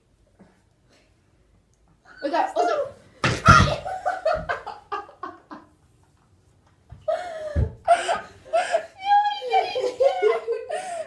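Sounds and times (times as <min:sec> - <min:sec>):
girls laughing: 0:02.2 - 0:05.7, 0:07.1 - 0:11.0.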